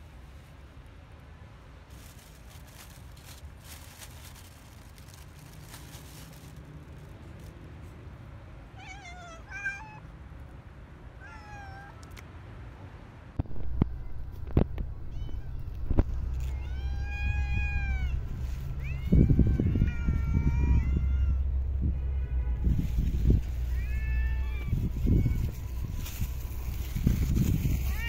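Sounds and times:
cat meowing: 0:08.7 - 0:10.1, 0:11.2 - 0:12.2, 0:14.9 - 0:21.5, 0:23.6 - 0:26.0, 0:27.7 - 0:28.0.

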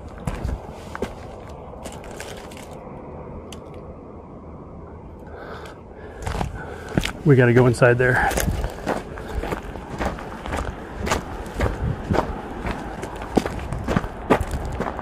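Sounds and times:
footsteps crunching on rubble: 0:00.0 - 0:02.8, 0:06.2 - 0:15.0
low rumble: 0:00.0 - 0:15.0.

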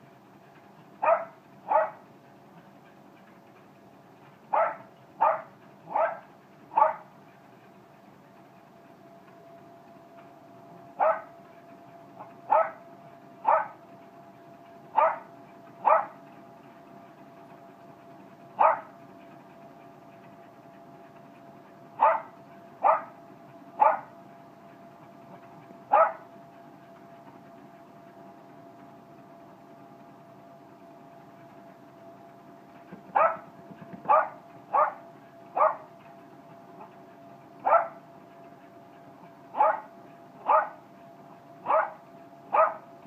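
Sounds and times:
treadmill hum and whine: 0:00.0 - 0:43.0
dog barking: 0:01.0 - 0:02.0, 0:04.5 - 0:07.0, 0:11.0 - 0:11.3, 0:12.5 - 0:12.8, 0:13.4 - 0:13.8, 0:15.0 - 0:16.2, 0:18.6 - 0:18.9, 0:22.0 - 0:23.1, 0:23.8 - 0:24.1, 0:25.9 - 0:26.3, 0:33.1 - 0:33.5, 0:34.1 - 0:35.0, 0:35.6 - 0:35.9, 0:37.7 - 0:38.0, 0:39.6 - 0:40.8, 0:41.6 - 0:42.8.

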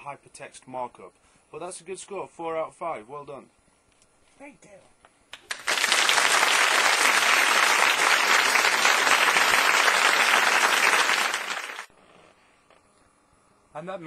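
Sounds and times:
audience applause: 0:05.4 - 0:11.9.

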